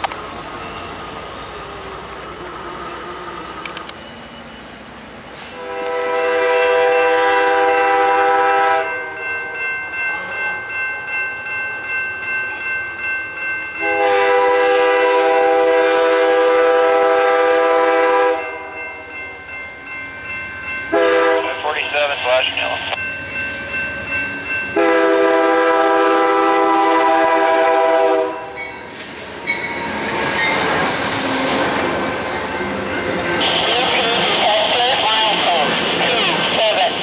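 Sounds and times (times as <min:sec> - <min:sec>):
crossing warning bell ringing: 0:00.0 - 0:37.0
locomotive air horn blasts: 0:05.5 - 0:08.9, 0:13.8 - 0:18.6, 0:20.9 - 0:21.6, 0:24.8 - 0:28.5.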